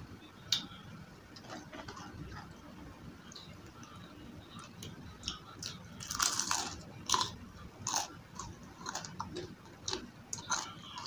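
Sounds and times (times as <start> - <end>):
crisp chewing crunches: 5.6 - 11.0
crunchy fried food bite: 6.0 - 11.0.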